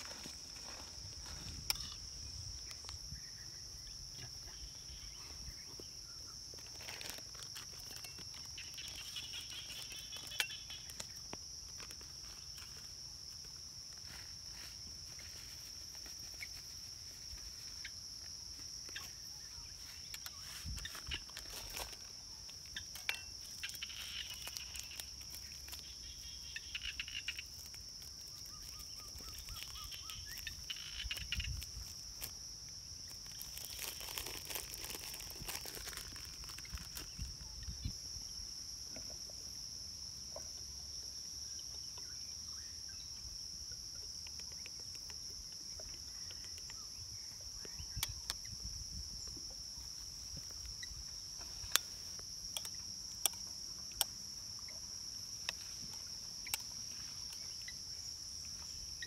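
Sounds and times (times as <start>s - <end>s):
plastic bag rustling: 6.6s - 9.0s, 33.2s - 37.2s
high-pitched insect drone: 14.0s - 38.4s.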